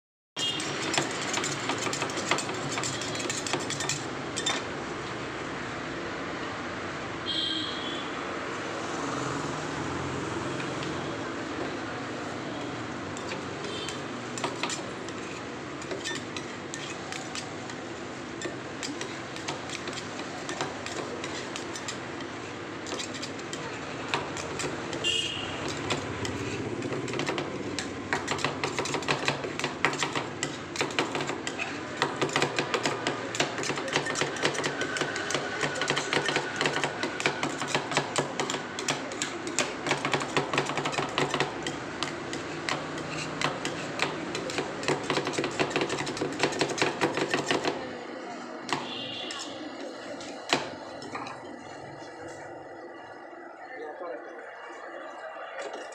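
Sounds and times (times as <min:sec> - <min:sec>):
metal spatulas scraping steel plate: 0:00.4 - 0:04.8, 0:13.1 - 0:47.8, 0:48.7 - 0:51.5.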